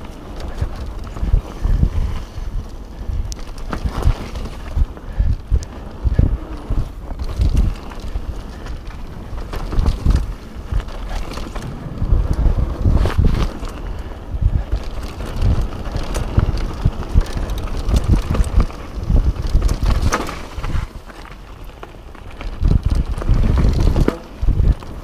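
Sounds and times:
bike tyres rumbling and rattling: 0:00.0 - 0:25.0
wind buffeting microphone: 0:00.0 - 0:25.0
bike knocking over boards and rocks: 0:03.4 - 0:04.8, 0:14.9 - 0:25.0.

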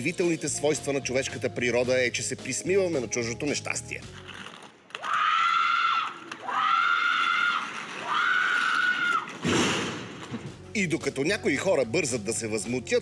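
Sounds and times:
person screaming: 0:05.0 - 0:09.3.

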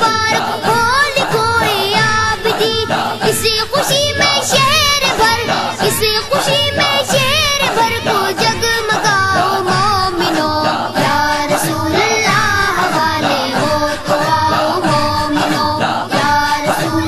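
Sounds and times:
boys singing devotional song: 0:00.0 - 0:17.0
steady musical backing: 0:00.0 - 0:17.0.

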